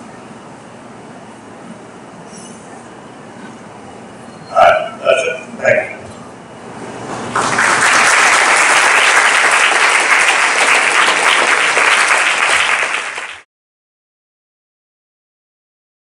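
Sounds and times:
audience applauding: 0:07.3 - 0:13.5.

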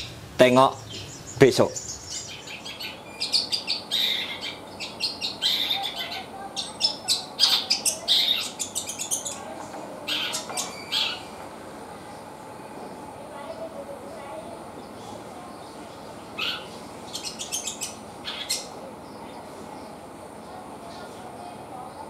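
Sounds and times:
bird singing high chirps: 0:00.7 - 0:09.5, 0:10.1 - 0:11.4, 0:14.8 - 0:20.0.

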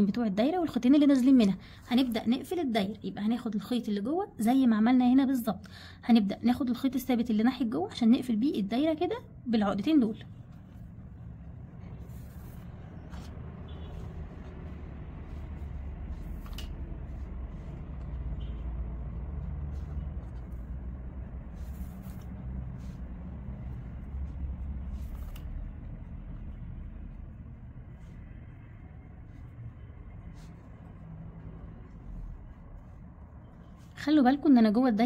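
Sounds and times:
low background rumble: 0:07.1 - 0:35.0.

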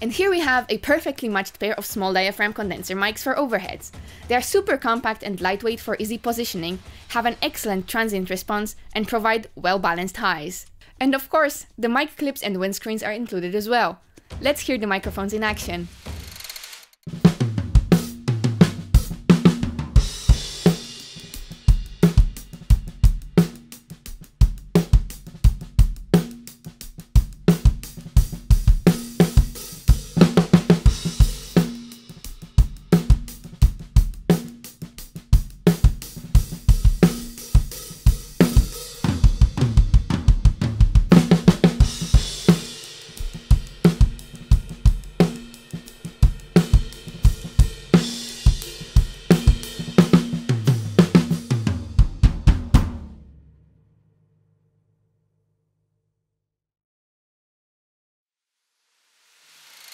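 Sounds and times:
drum kit groove: 0:00.0 - 0:10.5, 0:14.1 - 0:53.4
cymbal crashes: 0:41.8 - 0:51.0.

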